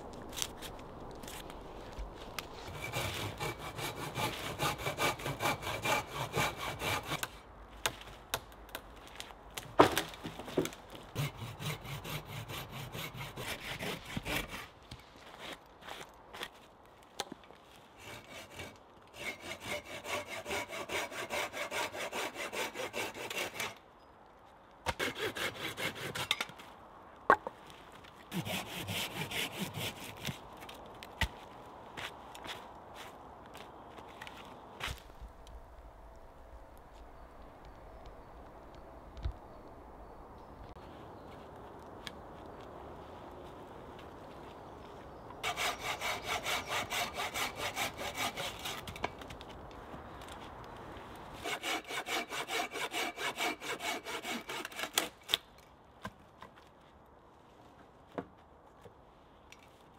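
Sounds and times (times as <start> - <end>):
hand saw cutting wood: 2.6 - 7.4, 11.1 - 14.7, 18.0 - 23.8, 24.9 - 26.5, 28.3 - 30.4, 45.4 - 49.1, 51.4 - 55.4.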